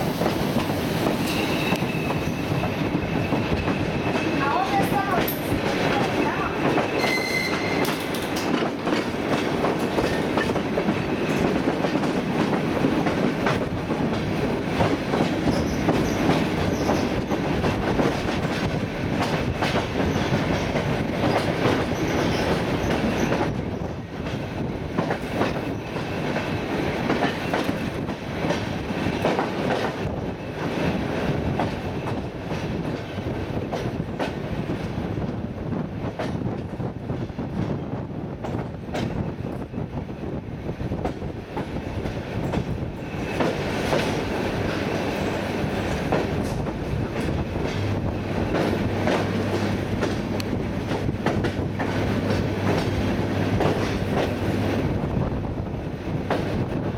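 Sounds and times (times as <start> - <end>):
clickety-clack over rail joints: 0.0 - 56.9
train wheels rumbling on rails: 0.0 - 56.9.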